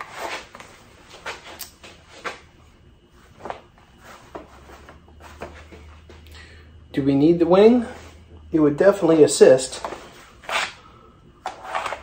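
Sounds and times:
low hum: 0.0s - 12.0s
shirt rustling: 3.1s - 6.2s
shuffling footsteps: 3.1s - 6.3s.

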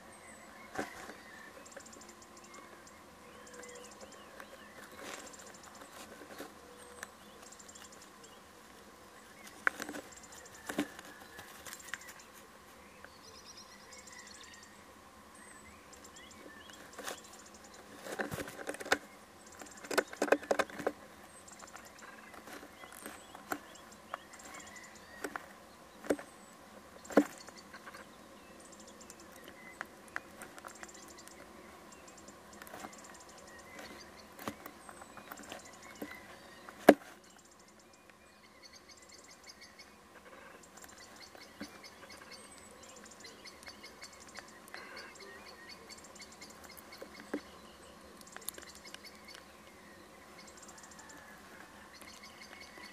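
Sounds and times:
bird scratching in wooden box: 4.3s - 7.9s, 9.4s - 12.4s, 16.4s - 26.3s, 29.3s - 31.6s, 32.6s - 37.4s.

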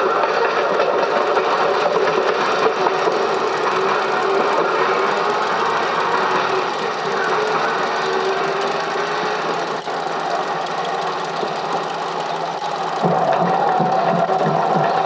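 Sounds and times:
steam train rattling: 0.0s - 15.0s.

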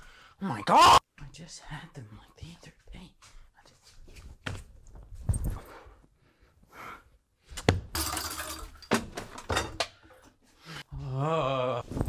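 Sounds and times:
objects knocking and thumping: 7.6s - 10.3s
objects clattering: 7.9s - 10.4s.

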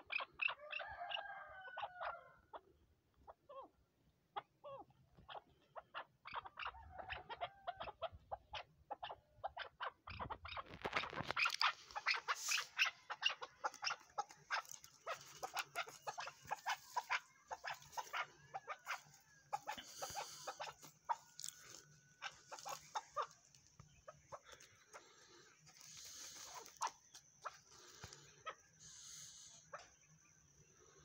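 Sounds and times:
partridge clucking: 10.2s - 25.1s.

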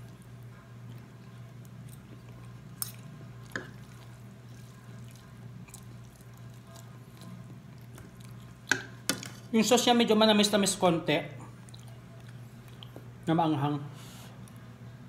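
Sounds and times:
wet chewing and eating: 0.0s - 9.5s, 11.4s - 13.3s
steady low hum: 0.0s - 15.0s.

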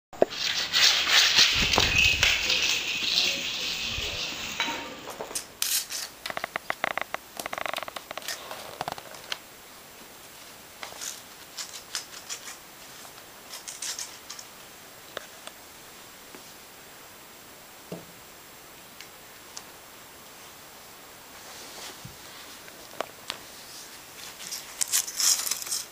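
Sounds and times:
low thumps: 1.5s - 4.4s
cat scuffling on rug: 21.3s - 25.6s.

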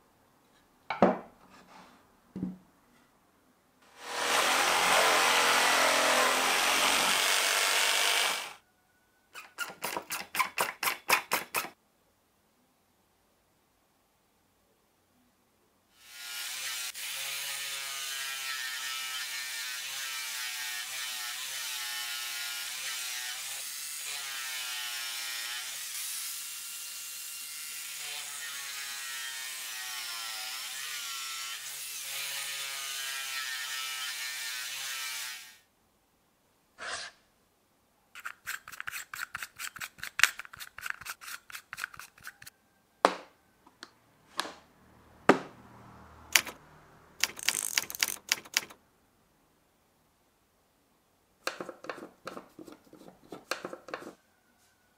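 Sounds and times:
angle grinder sanding wood: 3.9s - 8.6s
typewriter ratchet clicks: 46.4s - 46.6s, 47.2s - 48.8s
typewriter sharp clicks: 46.4s - 46.6s, 47.2s - 48.8s.

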